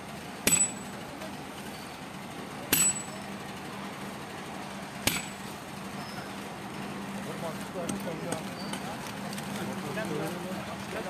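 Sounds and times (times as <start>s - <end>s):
sharp metallic clangs: 0.4s - 1.0s, 2.7s - 3.3s, 5.0s - 5.5s.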